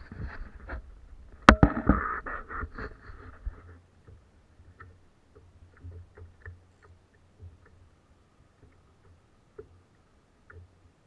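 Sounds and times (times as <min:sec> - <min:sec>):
handling noise rubbing and knocking: 0:01.5 - 0:03.8.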